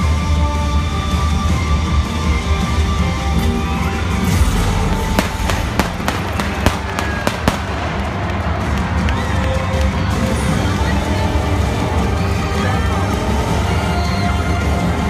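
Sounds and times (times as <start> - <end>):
loud music with heavy bass: 3.6 - 9.1
pyrotechnic bangs: 5.0 - 9.0.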